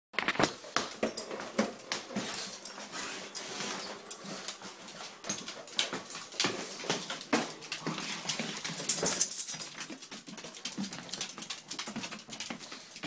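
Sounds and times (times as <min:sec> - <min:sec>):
dog claws clicking on wooden floor: 0:03.4 - 0:13.0.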